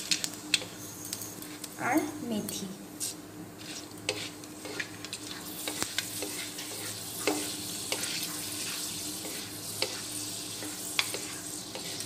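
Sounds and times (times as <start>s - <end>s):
spices sizzling in hot oil: 0.0s - 1.8s, 2.4s - 12.0s
wooden spatula scraping wok: 3.6s - 12.0s.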